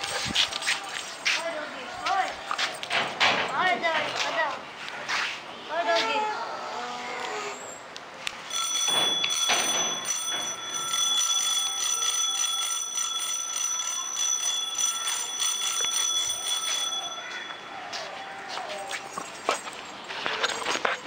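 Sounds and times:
bell or alarm ringing: 0:08.5 - 0:19.9.

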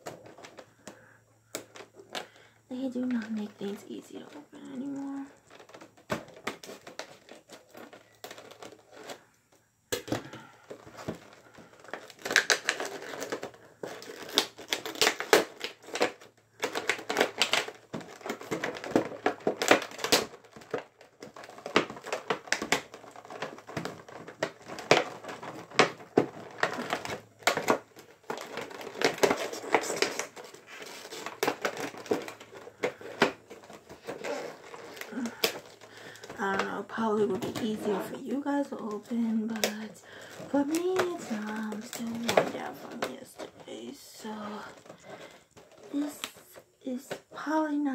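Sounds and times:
plastic packaging crinkling: 0:00.0 - 0:47.9.

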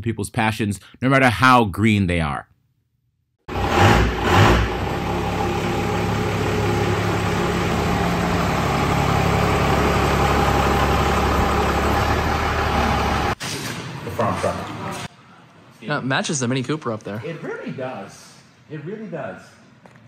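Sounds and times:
diesel engine revving and idling: 0:03.5 - 0:13.4.

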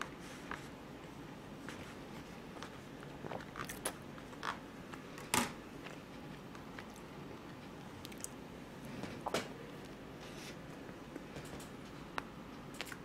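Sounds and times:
quiet chewing: 0:02.2 - 0:05.2, 0:05.8 - 0:13.0.

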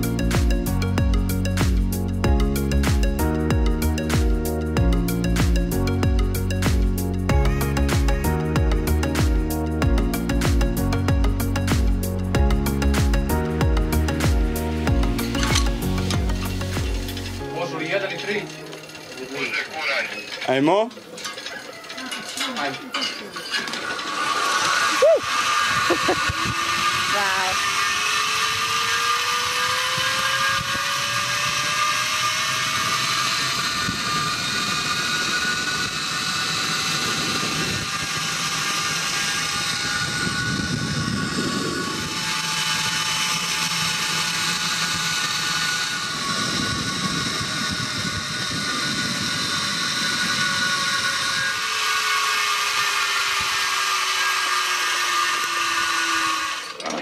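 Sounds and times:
zip line pulleys whining: 0:00.0 - 0:57.0
wind noise on microphone: 0:24.4 - 0:54.2.

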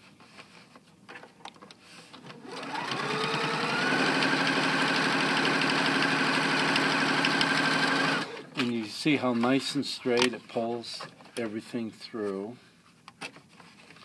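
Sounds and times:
sewing machine stitching: 0:02.2 - 0:08.6.

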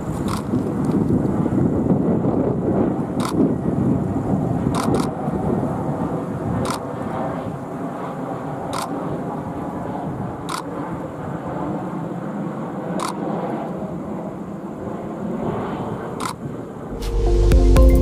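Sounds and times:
jet engines rumbling: 0:00.0 - 0:18.0
camera shutter clicking: 0:04.8 - 0:05.1.

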